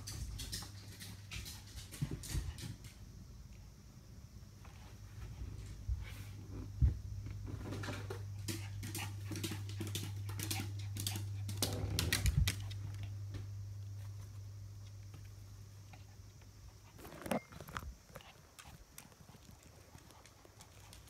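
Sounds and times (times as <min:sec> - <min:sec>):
dog paws pattering on stairs: 0:00.0 - 0:03.0, 0:07.3 - 0:15.5, 0:18.1 - 0:21.0.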